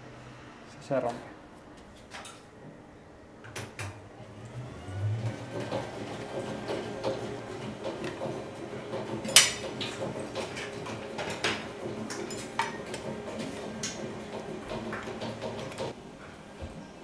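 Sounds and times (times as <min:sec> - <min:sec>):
dough mixer running: 0:04.2 - 0:16.0
kitchen items clinking: 0:09.0 - 0:14.0.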